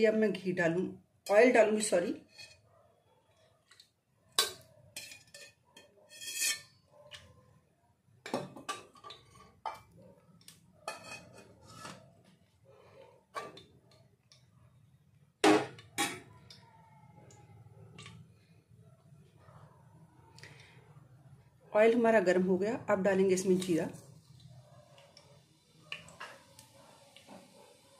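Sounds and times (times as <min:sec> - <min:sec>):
spoon scraping metal pot: 0:02.2 - 0:02.7, 0:04.4 - 0:07.2, 0:10.8 - 0:12.1.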